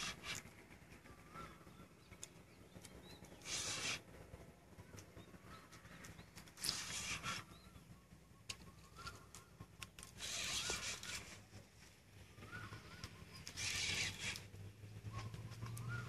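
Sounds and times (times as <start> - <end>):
fishing reel whirring: 0.0 - 1.6, 3.3 - 4.4, 5.5 - 7.8, 8.9 - 11.7, 12.3 - 16.0
faint bird calls: 0.0 - 16.0.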